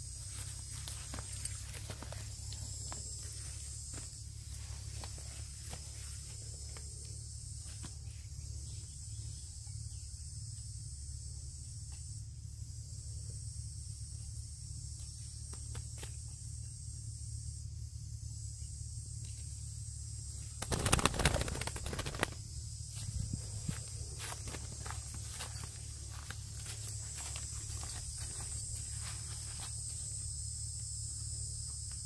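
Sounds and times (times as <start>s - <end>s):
high-pitched insect buzz: 0.0s - 32.0s
dove wings flapping: 20.5s - 22.5s.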